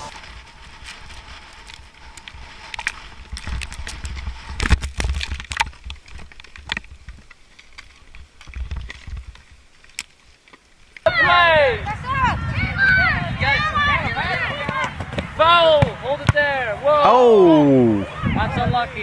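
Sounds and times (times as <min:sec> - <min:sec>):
skis scraping on snow: 0:00.0 - 0:04.6
wind buffeting microphone: 0:11.1 - 0:16.1, 0:17.6 - 0:19.0.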